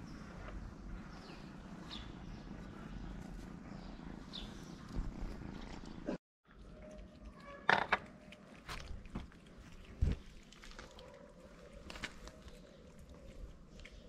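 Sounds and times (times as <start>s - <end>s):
cat purring: 0.0s - 6.2s
kittens eating wet food: 5.2s - 14.0s.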